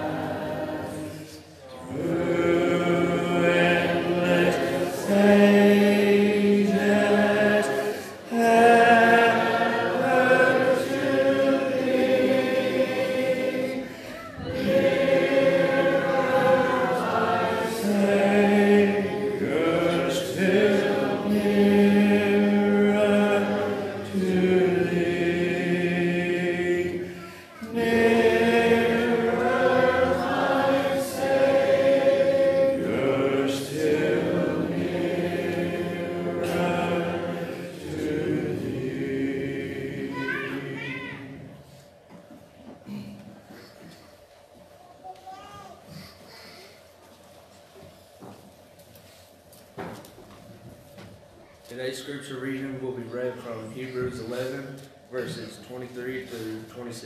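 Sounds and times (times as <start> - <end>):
congregation singing a hymn: 0.0 - 42.3, 52.0 - 57.0.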